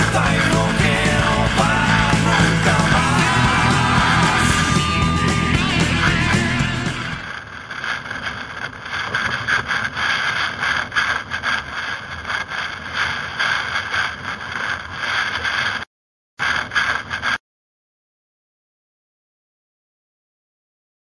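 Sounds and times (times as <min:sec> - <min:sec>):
music: 0:00.0 - 0:07.2.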